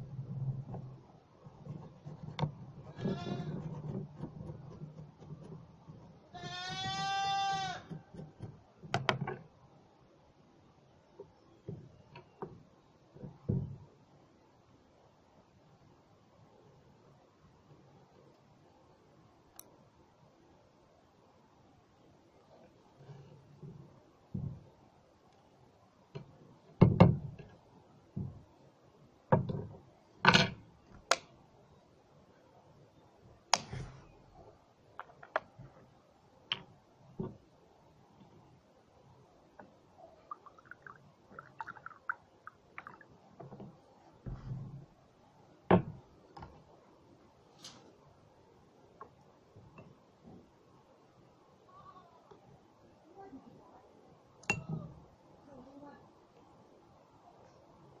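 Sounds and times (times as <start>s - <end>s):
goat bleating: 3.0s - 3.5s, 6.4s - 7.8s.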